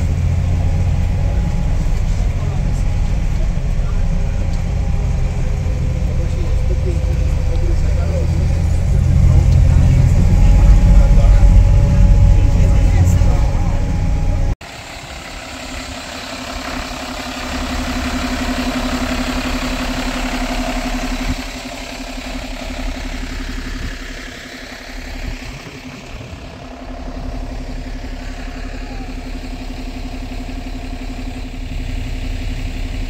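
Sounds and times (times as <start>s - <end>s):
vehicle engine running: 0.0s - 33.0s.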